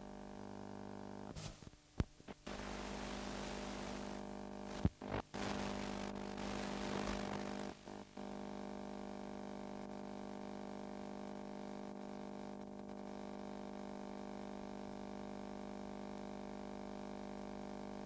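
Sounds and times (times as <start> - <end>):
tape hiss: 0.0 - 10.6
electrical hum: 0.0 - 12.8.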